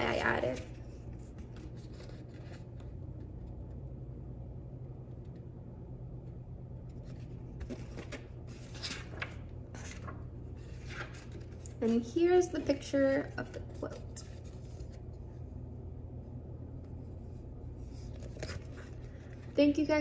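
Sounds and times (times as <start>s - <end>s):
steady low hum: 0.0s - 20.0s
rustles and taps of handling book: 6.9s - 10.2s.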